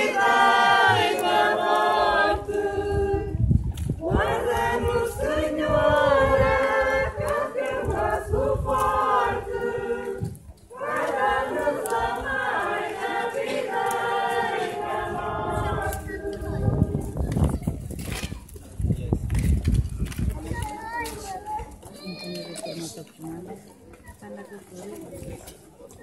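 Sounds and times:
group singing in unison: 0.0 - 17.0.

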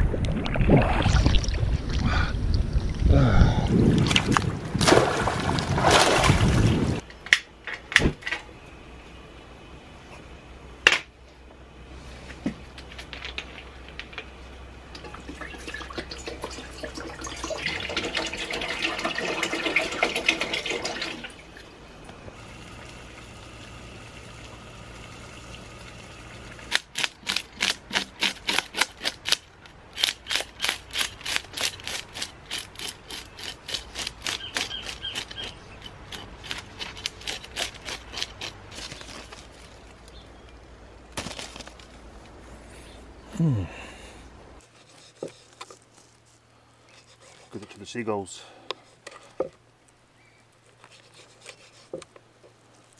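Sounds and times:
water pouring into metal pot: 15.4 - 21.3
knife scraping fish scales: 30.0 - 39.0, 44.6 - 45.8, 46.8 - 47.8, 50.8 - 52.1.

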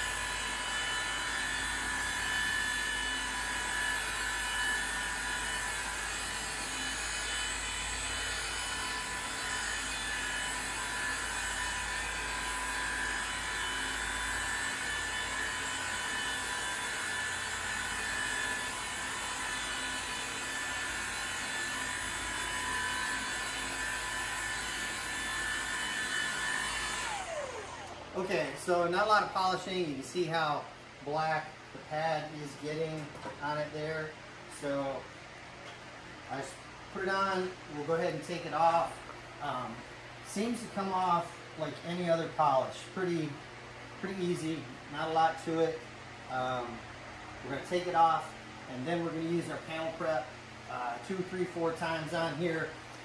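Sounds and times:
electric polisher whining: 0.0 - 28.4.

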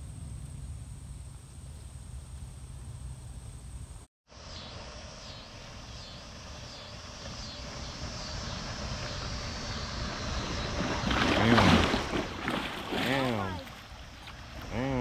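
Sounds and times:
water noise: 4.4 - 15.0
boat wake splashing on bank: 4.8 - 15.0
outboard motors running: 4.8 - 15.0.

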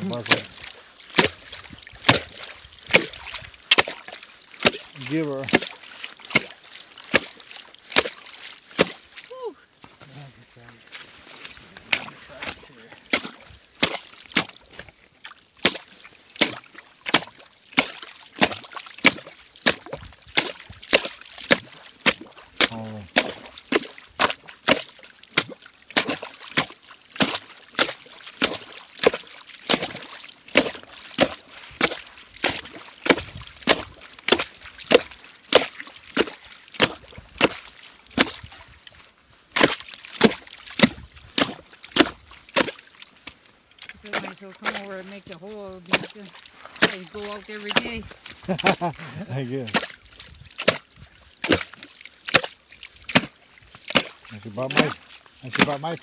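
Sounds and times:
ice chisel chopping ice: 24.7 - 30.0, 53.1 - 55.8.

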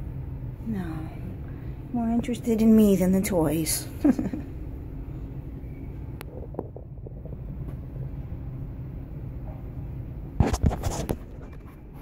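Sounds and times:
low rumble: 4.0 - 10.3.

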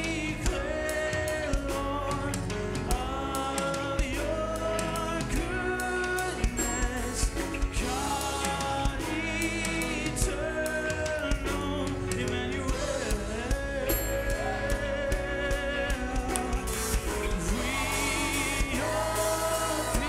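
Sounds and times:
choir singing: 0.0 - 11.4, 12.7 - 20.0
drum and cymbal beat: 0.0 - 20.0.

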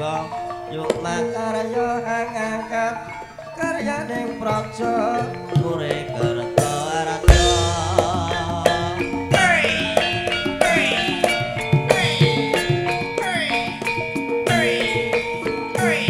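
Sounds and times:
gamelan music: 0.0 - 16.0
drum strokes: 6.6 - 16.0.

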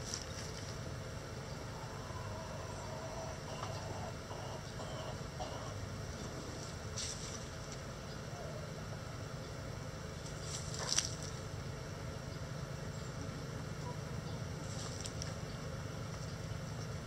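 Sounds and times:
chickens foraging: 0.0 - 17.0.

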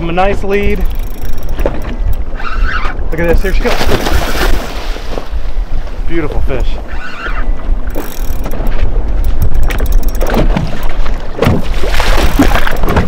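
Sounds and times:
knocks and splashes: 3.5 - 5.4, 8.0 - 13.0.

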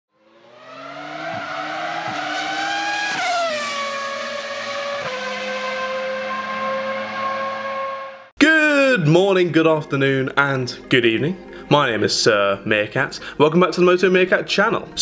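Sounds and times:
racing car engine revving: 0.2 - 8.3.

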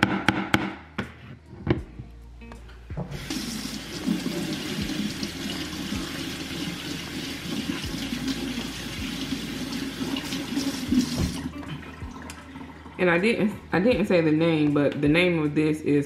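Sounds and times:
faucet running into sink: 3.1 - 13.1.

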